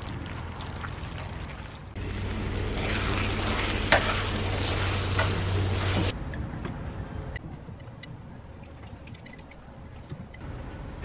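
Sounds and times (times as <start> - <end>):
steady low hum: 2.0 - 7.4.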